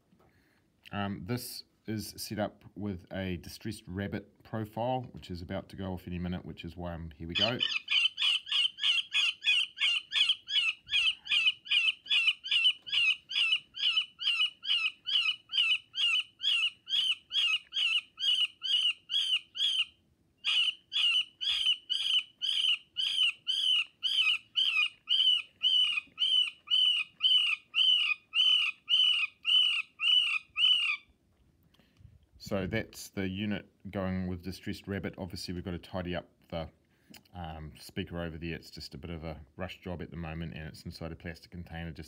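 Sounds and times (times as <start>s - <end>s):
rabbit squeals from speaker: 7.3s - 19.9s, 20.5s - 31.0s.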